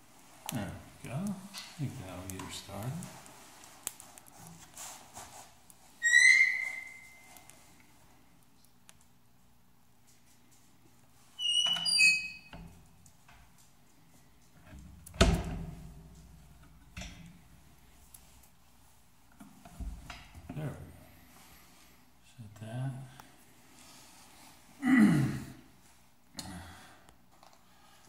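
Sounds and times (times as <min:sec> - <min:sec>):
stove door hinges squeaking: 0:06.0 - 0:07.2, 0:11.4 - 0:12.6.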